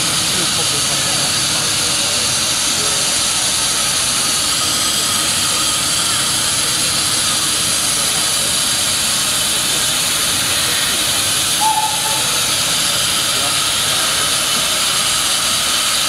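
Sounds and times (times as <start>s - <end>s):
steam locomotive hissing: 0.0s - 16.0s
high squeak: 11.5s - 13.0s.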